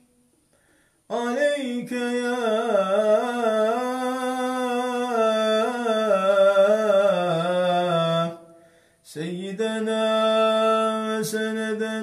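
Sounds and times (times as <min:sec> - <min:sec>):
man chanting: 0:01.1 - 0:08.5, 0:09.1 - 0:12.0.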